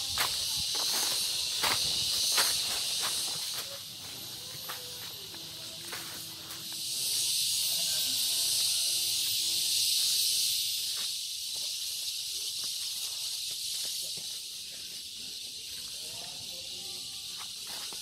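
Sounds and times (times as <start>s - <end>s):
faint footsteps on dirt: 0.0s - 7.1s
high-pitched insect drone: 0.0s - 18.0s.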